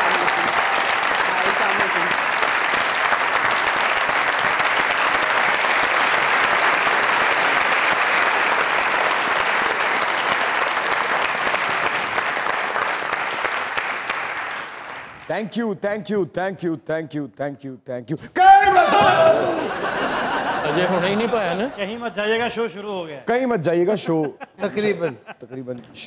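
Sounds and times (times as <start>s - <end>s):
audience applauding: 0.0s - 15.3s.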